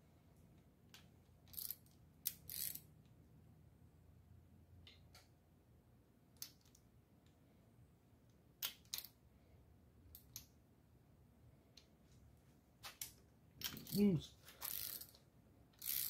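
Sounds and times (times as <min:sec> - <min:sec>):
socket ratchet clicking: 0:01.4 - 0:02.9, 0:08.6 - 0:09.2, 0:14.6 - 0:15.2, 0:15.8 - 0:16.0.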